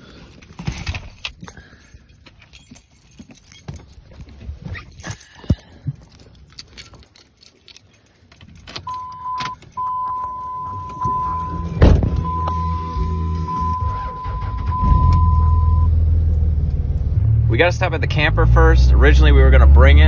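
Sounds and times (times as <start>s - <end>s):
keys jangling and clicking: 0.2s - 12.9s
electronic warning chime: 8.9s - 15.9s
engine starting and idling: 11.2s - 16.6s.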